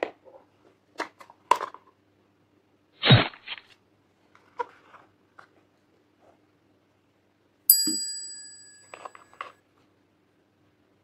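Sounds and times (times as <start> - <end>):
glass dish ringing ding: 7.7 - 9.2.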